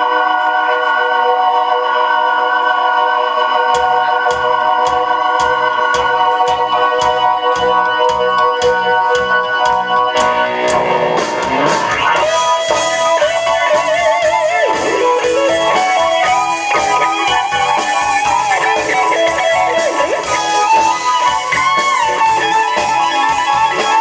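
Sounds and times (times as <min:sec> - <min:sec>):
sustained organ chord: 0:00.0 - 0:14.0
steady drum beat: 0:03.7 - 0:24.0
electric guitar rising slide: 0:10.0 - 0:24.0.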